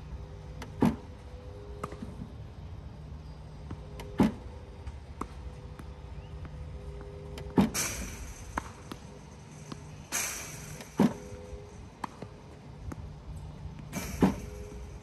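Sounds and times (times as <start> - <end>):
low motor hum: 0.0 - 15.0
balls popping off racket: 3.6 - 15.0
ball machine loud thumps: 7.4 - 13.2, 13.8 - 15.0
short hiss: 7.8 - 11.8, 13.9 - 15.0.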